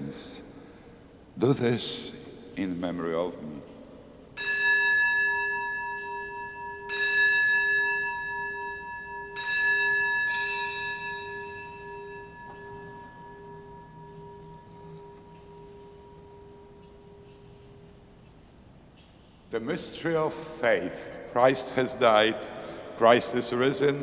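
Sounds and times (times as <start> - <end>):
altar bell ringing: 4.4 - 18.2.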